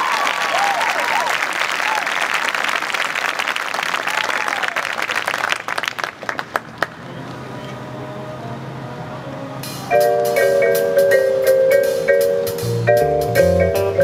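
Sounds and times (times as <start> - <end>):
person whooping: 0.0 - 2.1
audience applause: 0.0 - 7.0.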